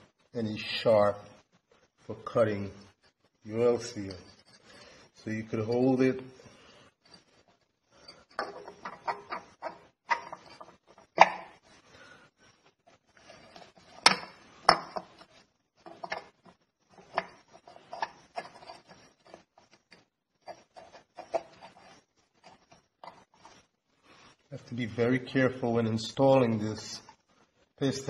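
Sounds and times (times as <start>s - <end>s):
light metallic clicks and knocks: 8.1s - 11.4s.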